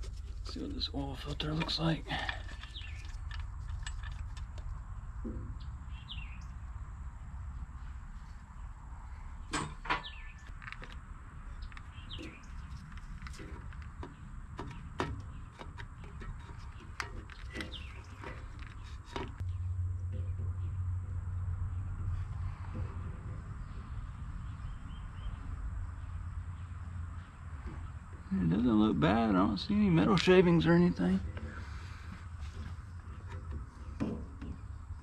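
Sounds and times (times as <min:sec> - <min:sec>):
steady low hum: 0:00.0 - 0:35.0
small metal clicks and knocks: 0:01.2 - 0:05.4, 0:09.5 - 0:20.6
bird chirps: 0:02.4 - 0:03.2, 0:05.6 - 0:06.6, 0:09.4 - 0:10.5, 0:11.5 - 0:13.2.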